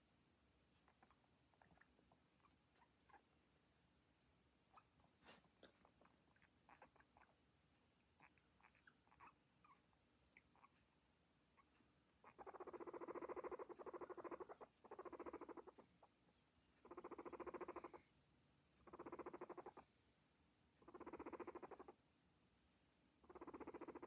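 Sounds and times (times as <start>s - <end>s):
guinea pig purring: 0.7s - 3.4s, 4.7s - 10.9s, 11.5s - 16.2s, 16.8s - 18.1s, 18.8s - 19.9s, 20.8s - 22.0s, 23.2s - 24.0s.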